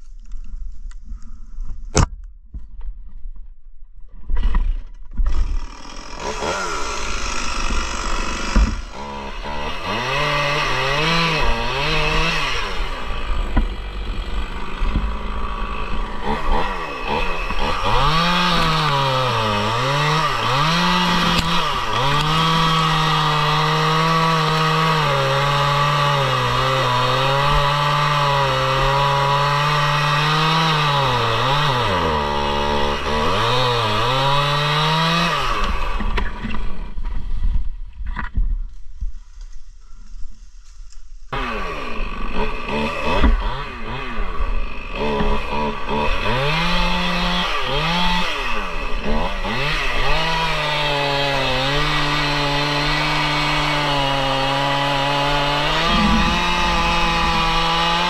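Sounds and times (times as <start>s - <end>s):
chainsaw cutting a log: 5.2s - 37.6s, 41.3s - 58.0s.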